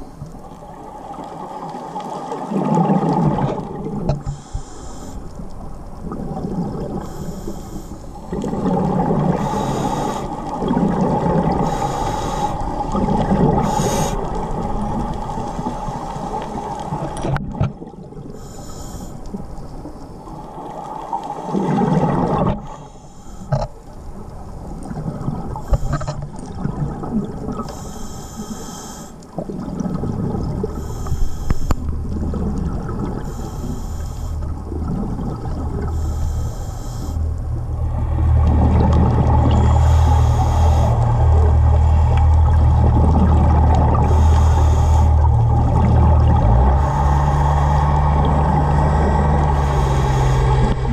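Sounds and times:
gurgling exhaled bubbles: 0.0s - 4.6s, 5.3s - 7.5s, 8.1s - 18.5s, 19.3s - 22.8s, 23.5s - 27.7s, 29.3s - 50.9s
steady hum: 4.0s - 17.4s, 27.5s - 29.2s, 30.4s - 50.9s
scuba regulator breathing: 4.2s - 5.4s, 6.9s - 8.4s, 9.2s - 10.7s, 11.4s - 17.2s, 18.3s - 19.4s, 22.6s - 23.7s, 25.6s - 26.2s, 27.6s - 29.2s, 30.7s - 32.0s, 33.2s - 34.7s, 35.8s - 38.4s, 39.3s - 42.3s, 43.8s - 50.9s.

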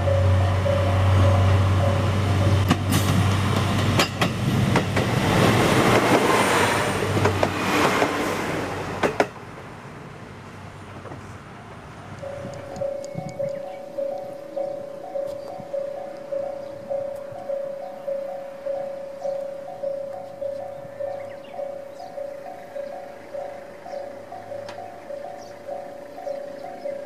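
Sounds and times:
diesel engine drone: 0.0s - 9.0s, 11.8s - 27.0s
train wheels rushing on rail: 0.0s - 9.7s.

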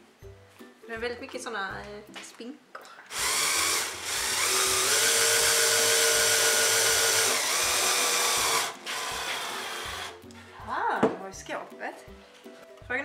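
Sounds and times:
cordless drill whining into wood: 3.1s - 10.2s.

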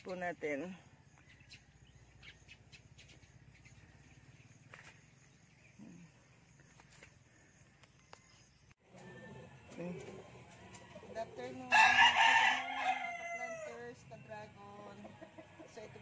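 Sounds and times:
faint chirps and clicks: 1.1s - 8.8s.

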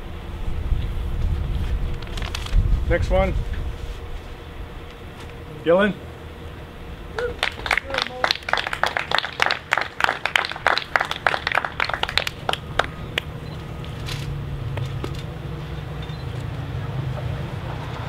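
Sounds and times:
low steady drone: 0.0s - 18.0s
small group clapping: 7.2s - 13.3s.

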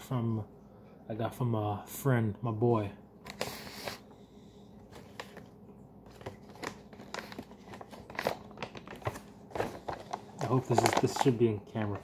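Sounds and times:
packaging crinkling rustle: 4.8s - 12.0s.

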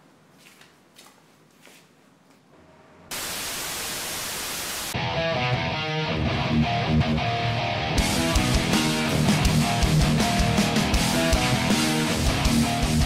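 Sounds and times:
tv static hiss: 3.1s - 5.0s
guitar music: 5.0s - 13.0s.

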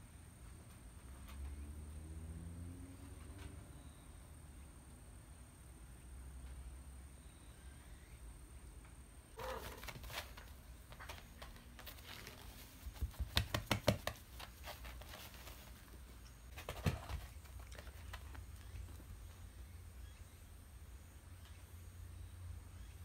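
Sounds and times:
paws and claws tapping on mats: 9.4s - 19.1s.

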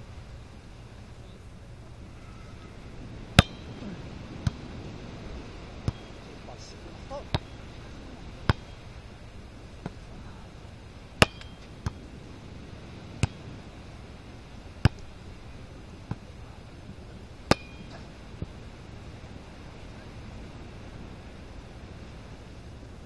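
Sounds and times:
volleyball hand slaps: 8.5s - 8.7s, 14.8s - 15.1s.

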